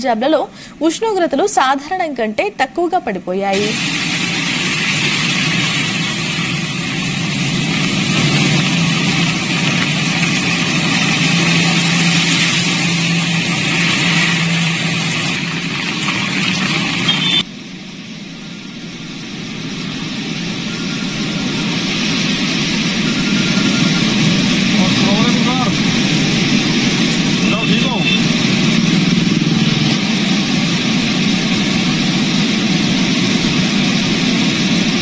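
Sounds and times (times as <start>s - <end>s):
water rushing and splashing: 3.6s - 17.5s, 19.0s - 35.0s
flooded river rushing: 3.7s - 17.4s, 20.7s - 35.0s
car engines running: 4.6s - 17.4s, 20.2s - 35.0s.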